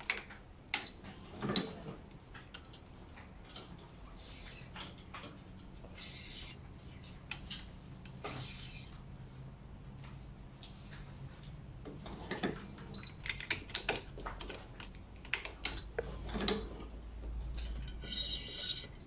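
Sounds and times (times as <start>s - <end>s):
clamps and tools clicking: 0.0s - 8.9s, 13.2s - 16.8s, 17.5s - 19.0s
string rubbing: 4.1s - 4.9s, 5.8s - 7.2s, 8.2s - 8.9s, 18.0s - 19.0s.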